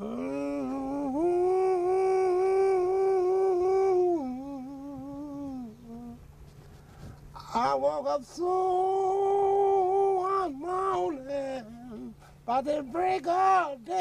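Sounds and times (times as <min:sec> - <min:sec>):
man singing wordless call: 0:00.0 - 0:06.2, 0:07.4 - 0:14.0.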